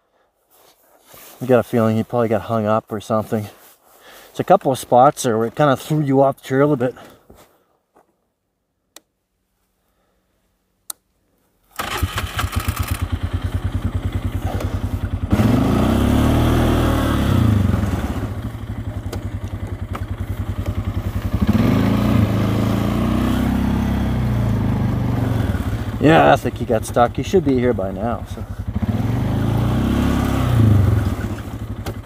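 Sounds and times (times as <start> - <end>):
atv engine revving: 11.8 - 32.0.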